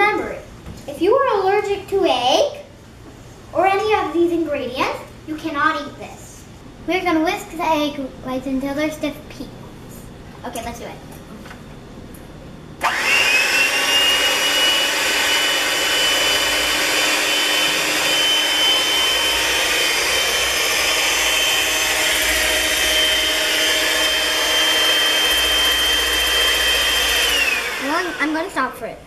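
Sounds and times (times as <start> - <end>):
electric hand mixer whining: 12.8 - 28.6.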